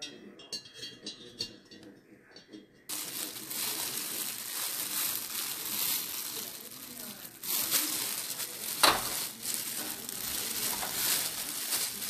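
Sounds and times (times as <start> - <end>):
wire trivet clinking on pot: 0.0 - 2.8.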